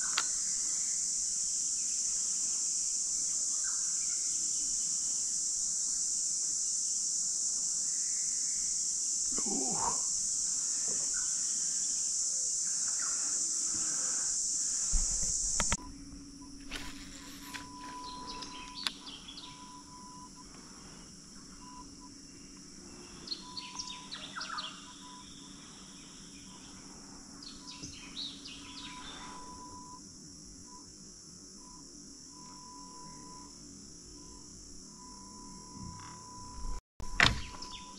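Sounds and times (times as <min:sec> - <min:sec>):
high insect drone: 0:00.0 - 0:37.9
low steady hum: 0:08.6 - 0:37.9
bird calls: 0:16.8 - 0:20.3, 0:21.4 - 0:29.8.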